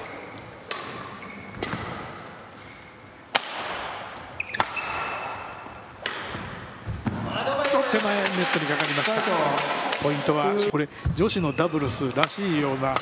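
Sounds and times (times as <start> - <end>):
shoes squeaking on court floor: 0.0 - 3.2, 4.0 - 7.2
racket hitting shuttlecock: 0.0 - 10.2.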